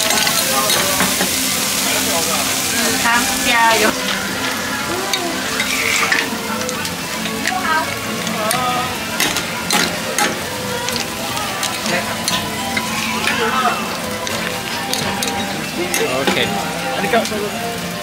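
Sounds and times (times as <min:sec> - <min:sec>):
food sizzling in a wok: 0:00.0 - 0:18.0
metal spatula scraping a pan: 0:05.4 - 0:06.4.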